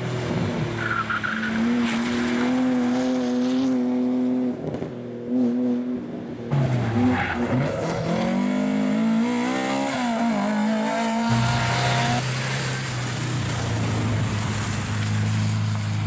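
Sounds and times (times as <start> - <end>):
rally car engine accelerating: 6.5 - 13.2
spray of car splashing through water: 12.2 - 16.0.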